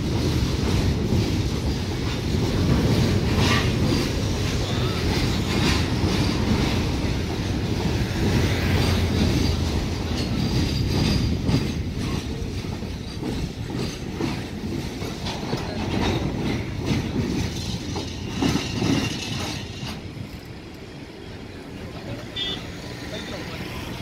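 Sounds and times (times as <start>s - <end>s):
wheels clattering over rails: 0.0s - 20.5s
freight train rumbling past: 0.0s - 24.0s.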